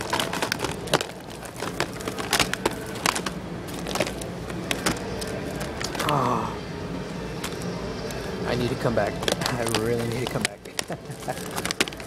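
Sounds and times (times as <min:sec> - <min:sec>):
plastic cases clacking: 0:00.0 - 0:06.2, 0:08.8 - 0:12.0.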